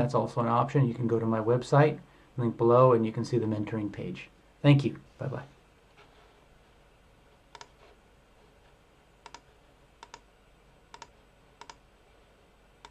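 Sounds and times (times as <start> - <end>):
computer mouse clicks: 7.5 - 7.9, 9.2 - 10.3, 10.9 - 11.8.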